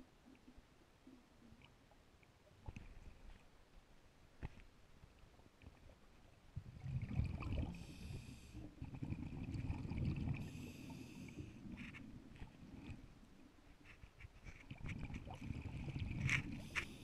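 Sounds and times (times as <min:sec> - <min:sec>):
exhaled bubbles underwater: 0:06.6 - 0:11.4, 0:14.8 - 0:17.0.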